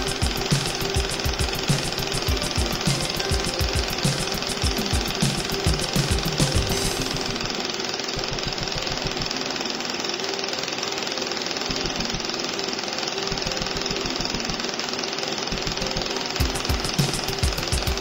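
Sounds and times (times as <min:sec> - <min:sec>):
laser welder rapid tapping: 0:00.0 - 0:18.0
steady machine hum: 0:00.0 - 0:18.0.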